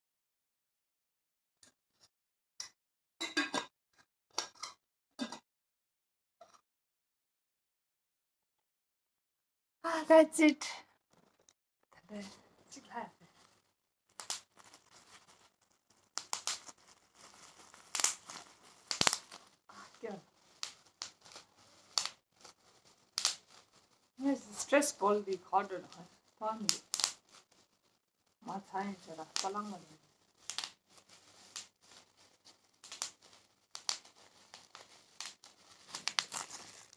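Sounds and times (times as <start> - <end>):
bubble wrap crinkling: 12.1 - 36.9.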